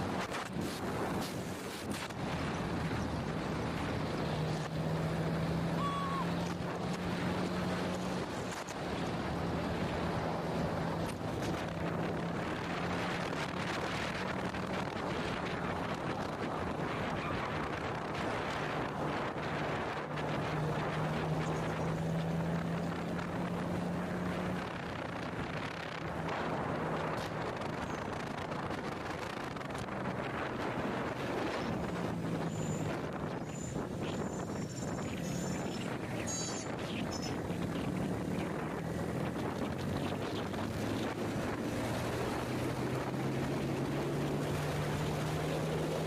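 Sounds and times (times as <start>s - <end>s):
wind rushing over microphone: 0.0s - 46.0s
short high tone: 5.8s - 6.3s.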